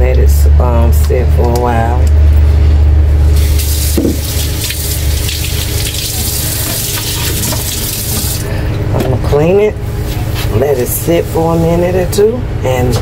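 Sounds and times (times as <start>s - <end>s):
steady low hum: 0.0s - 13.0s
water running from a tap: 3.4s - 8.5s.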